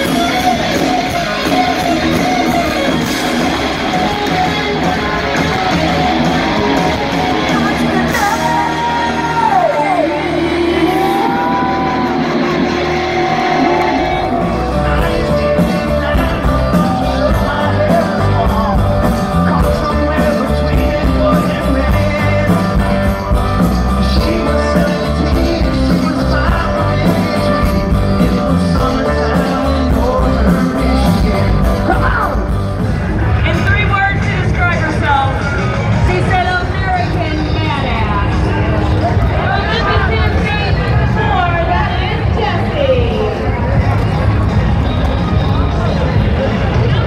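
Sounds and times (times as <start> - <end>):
person singing: 0.0 - 32.8
amplified rock band: 0.0 - 47.0
crowd shouting: 0.0 - 47.0
drums: 0.0 - 47.0
electric guitars: 0.0 - 47.0
pulsing bass: 0.0 - 47.0.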